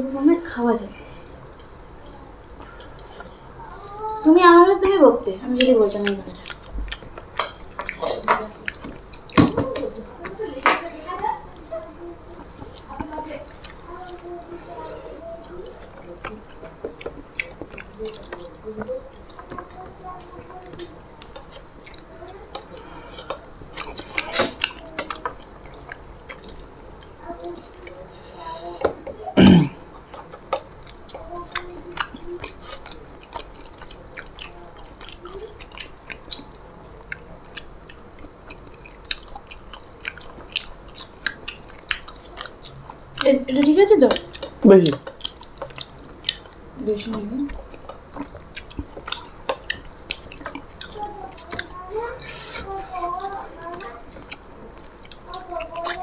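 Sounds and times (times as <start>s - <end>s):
people chewing: 0.9s - 56.0s.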